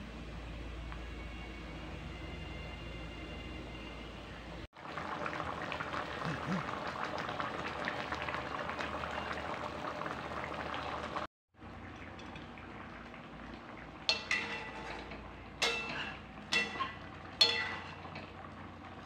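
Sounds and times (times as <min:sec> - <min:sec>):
curry bubbling: 0:04.8 - 0:19.0
spatula clinking on pan: 0:14.1 - 0:18.3.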